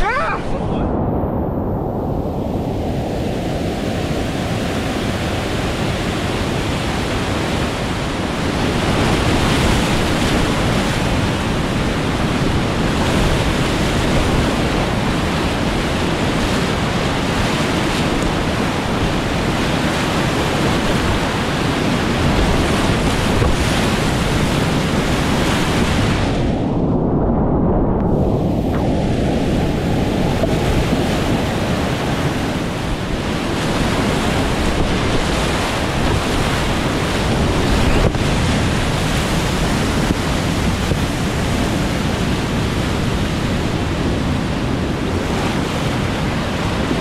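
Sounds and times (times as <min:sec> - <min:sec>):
creek whitewater rushing: 0:28.7 - 0:42.7.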